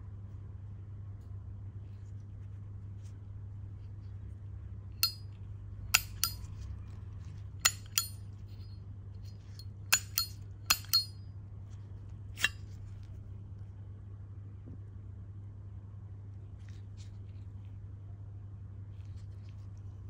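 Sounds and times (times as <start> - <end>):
metal lighter clinking: 5.0 - 5.2, 6.0 - 6.4, 7.7 - 8.2, 10.0 - 11.2.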